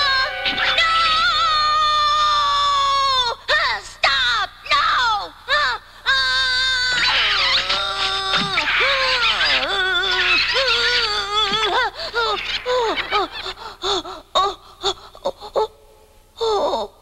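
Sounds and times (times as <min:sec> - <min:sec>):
cartoon lamb crying: 0:06.3 - 0:13.6
quiet breaths: 0:11.5 - 0:16.9.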